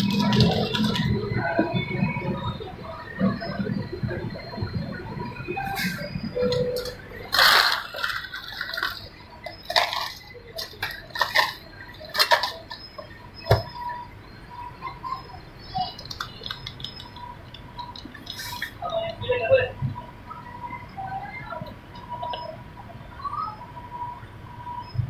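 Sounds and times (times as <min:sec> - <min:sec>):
ice cubes clattering: 0:07.3 - 0:12.8.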